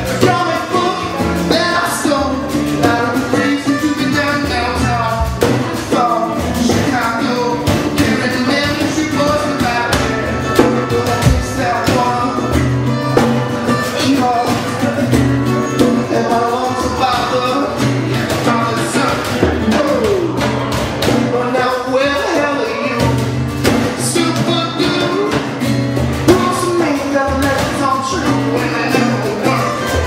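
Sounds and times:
acoustic guitar strumming: 0.0s - 30.0s
man singing: 0.0s - 30.0s
djembe strikes: 5.2s - 16.3s.

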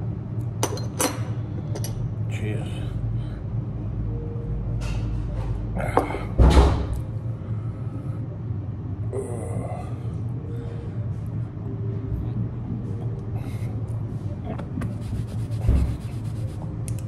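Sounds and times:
machinery humming: 0.0s - 17.0s.

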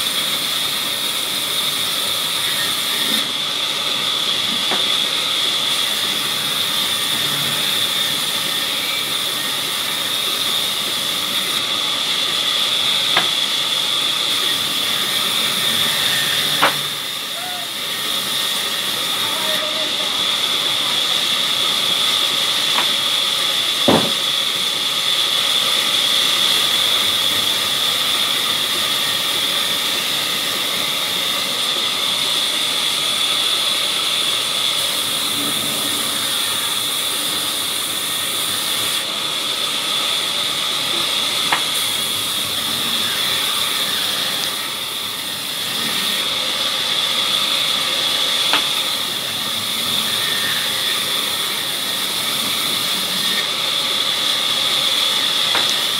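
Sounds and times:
band saw whining: 0.0s - 55.9s
sharp knocks: 23.9s - 24.2s.

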